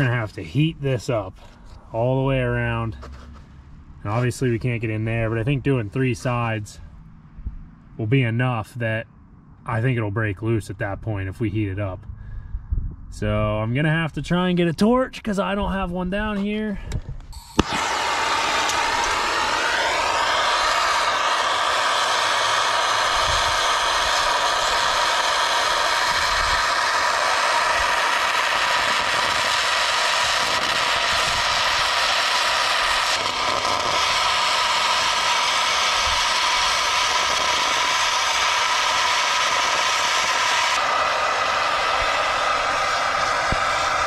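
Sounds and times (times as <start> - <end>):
gas torch hissing: 17.4 - 44.0.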